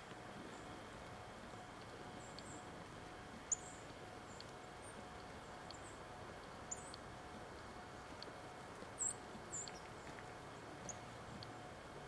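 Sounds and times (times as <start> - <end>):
small birds chirping: 2.1 - 2.7, 3.5 - 7.0, 8.9 - 11.5.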